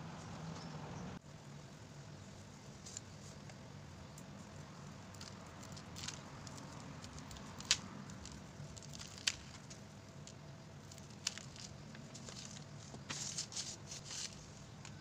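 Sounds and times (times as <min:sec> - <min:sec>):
straw rustling: 0:04.2 - 0:15.0.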